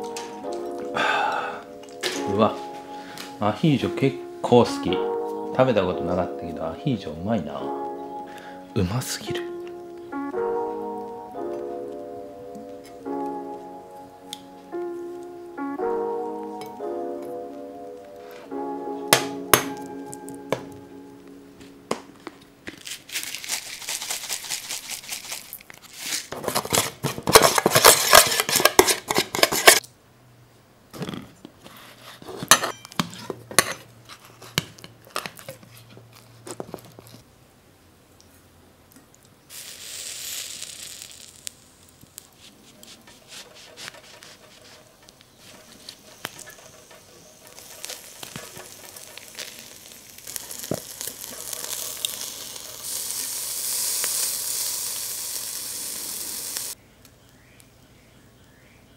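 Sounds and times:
metal spoon scraping bowl: 26.0 - 29.8, 42.6 - 50.6.

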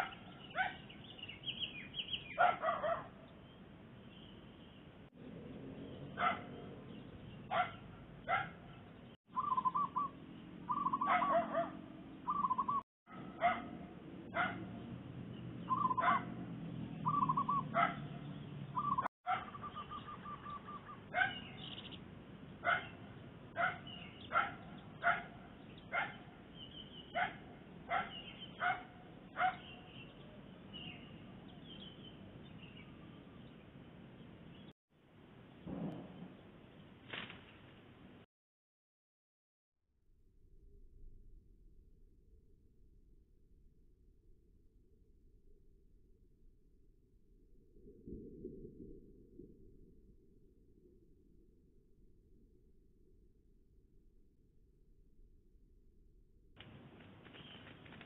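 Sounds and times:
dog barking: 0.0 - 0.9, 2.3 - 3.2, 6.1 - 6.7, 7.5 - 8.9, 10.8 - 11.9, 13.1 - 14.8, 15.7 - 16.4, 17.5 - 18.2, 19.3 - 19.7, 21.1 - 21.5, 22.6 - 26.3, 27.1 - 29.8.

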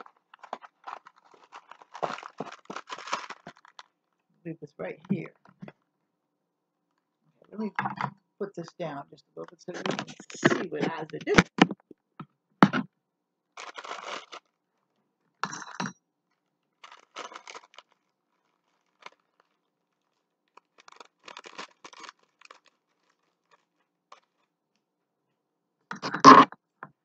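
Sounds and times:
plastic bag crinkling: 0.0 - 4.0, 13.6 - 14.6, 16.4 - 24.5.

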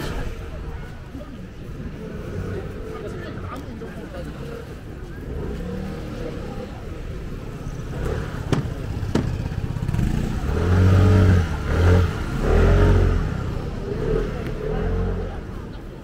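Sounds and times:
low street rumble: 0.0 - 16.0
vehicle engine revving: 4.4 - 15.8.

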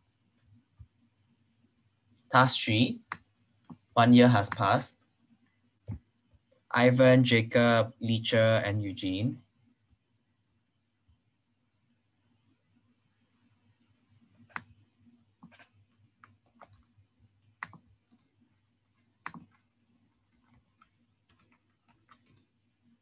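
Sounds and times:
faint steady hum: 0.0 - 23.0
mouse and keyboard clicks: 14.4 - 14.8, 15.4 - 18.4, 19.0 - 22.6.

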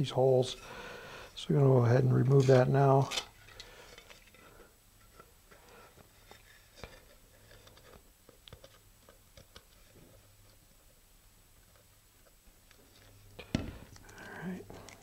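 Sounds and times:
tube being handled: 2.3 - 11.0.

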